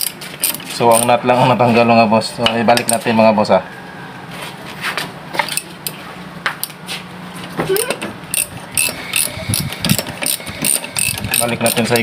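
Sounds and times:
ratchet clicking: 0.0s - 1.2s, 8.3s - 12.0s.

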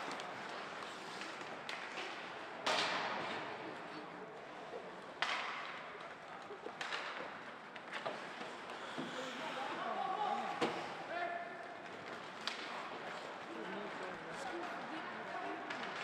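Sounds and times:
puck and stick impacts: 0.0s - 3.8s, 5.0s - 9.3s, 10.4s - 16.0s
hockey stick clicks: 0.1s - 3.1s, 5.2s - 8.8s, 12.0s - 12.9s, 15.6s - 16.0s.

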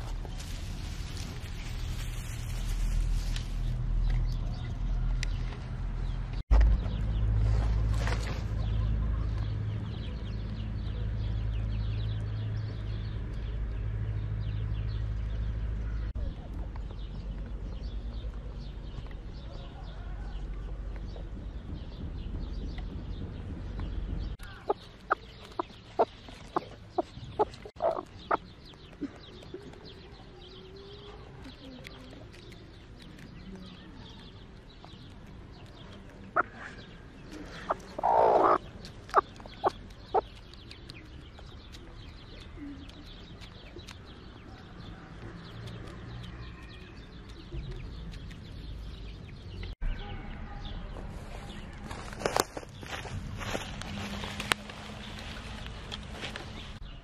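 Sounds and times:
low rumble: 0.0s - 28.7s
chickens clucking: 24.4s - 30.3s, 35.0s - 45.9s.

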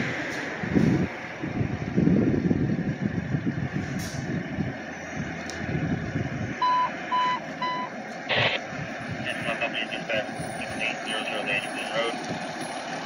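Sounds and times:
truck engine rumbling: 0.0s - 13.0s
short electronic beeps: 6.6s - 8.6s.

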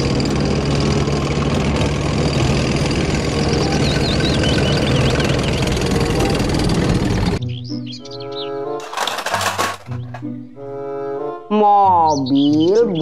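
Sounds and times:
tracks rumbling and clattering: 0.0s - 7.4s, 8.8s - 10.5s
tank engine drone: 0.0s - 11.3s
bird chirps: 3.4s - 6.3s, 7.4s - 8.8s, 12.0s - 13.0s.

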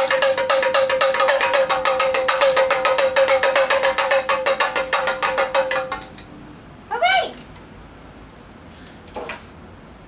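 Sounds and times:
pellet drum rattling: 0.0s - 6.2s.

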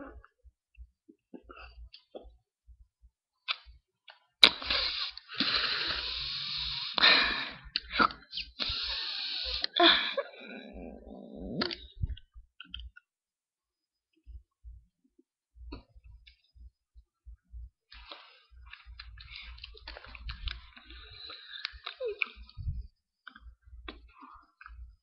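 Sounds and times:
hissing breath into microphone: 4.6s - 7.7s, 8.3s - 9.8s
soft low vocal sound: 9.8s - 12.4s.

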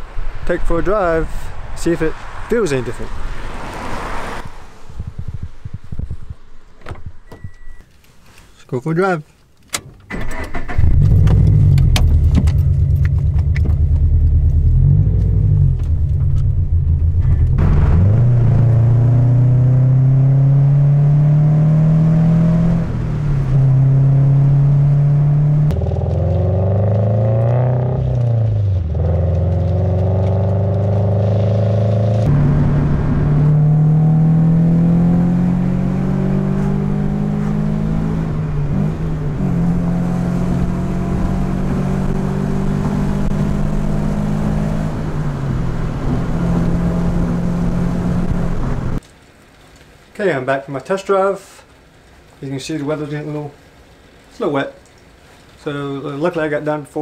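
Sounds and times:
car engine revving: 10.3s - 49.0s.

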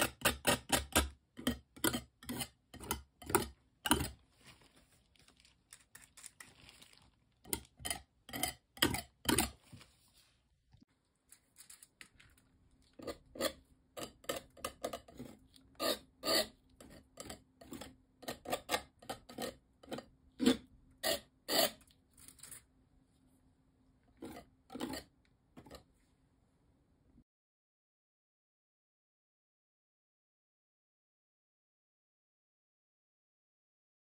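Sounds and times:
palette knife scraping paint: 0.0s - 10.4s, 12.8s - 22.7s, 24.1s - 25.9s.

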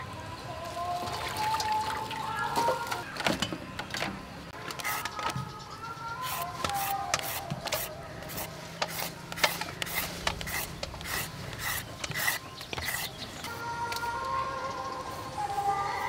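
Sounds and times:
peeler rasping on carrot: 6.2s - 13.2s.

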